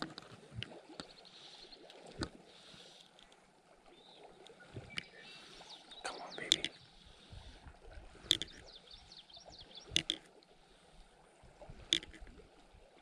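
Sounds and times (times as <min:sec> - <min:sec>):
flowing water hiss: 0:00.5 - 0:12.6
small birds chirping: 0:04.0 - 0:07.0, 0:08.3 - 0:10.2
sharp clicks: 0:08.3 - 0:08.7, 0:09.9 - 0:10.2, 0:11.9 - 0:12.2.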